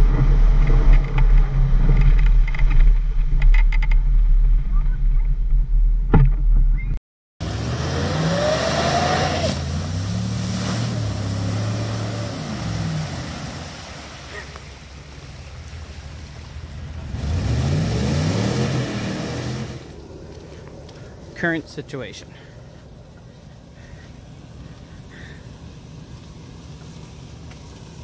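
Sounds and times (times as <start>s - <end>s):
truck engine revving: 7.4s - 20.0s
wheels throwing mud and water: 7.4s - 22.1s, 22.8s - 28.0s.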